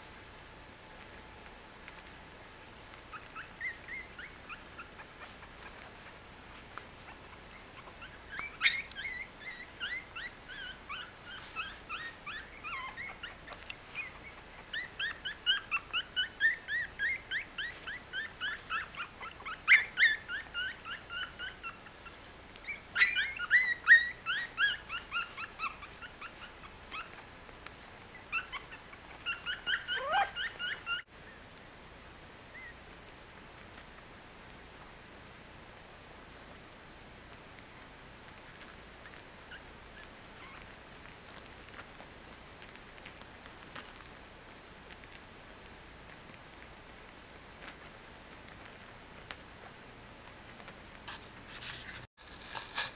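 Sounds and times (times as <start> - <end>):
faint hiss: 0.0 - 52.9
puppies squeaking and whimpering: 3.0 - 6.3, 7.0 - 27.3, 28.1 - 31.4, 32.5 - 32.8, 39.5 - 41.9.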